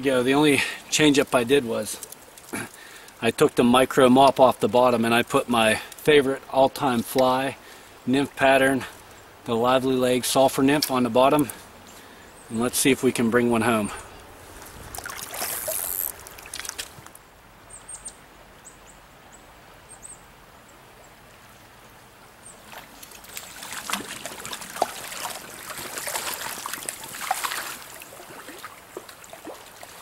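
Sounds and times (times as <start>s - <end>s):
stream water trickling: 0.0s - 17.8s, 18.4s - 30.0s
splashes in water: 14.9s - 17.0s, 22.7s - 30.0s.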